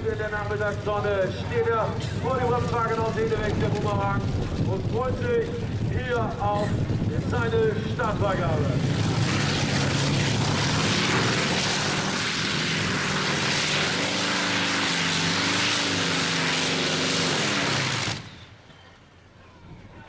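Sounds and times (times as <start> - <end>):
pulling tractor engine at full power: 0.0 - 18.8.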